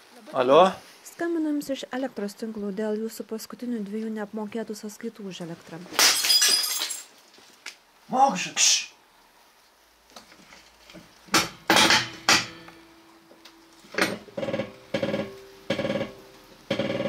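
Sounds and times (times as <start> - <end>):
metal knocking on metal: 14.0 - 17.0.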